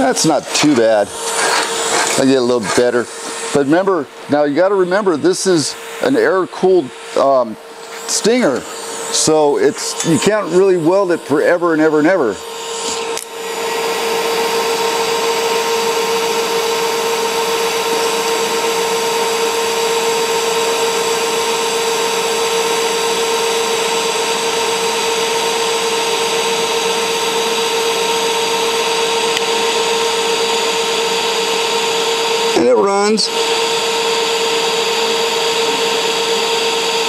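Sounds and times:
welding arc hissing: 0.0 - 30.0.

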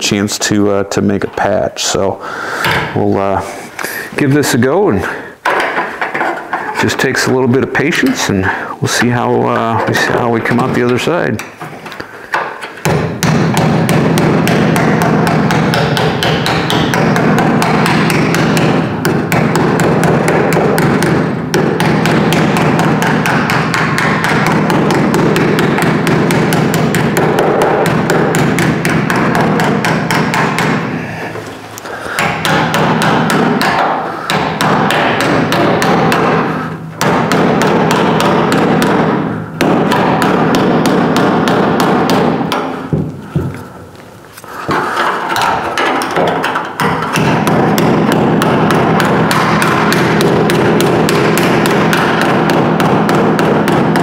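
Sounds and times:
hammer tapping sheet steel: 12.3 - 30.9, 32.1 - 43.5, 44.7 - 54.0.

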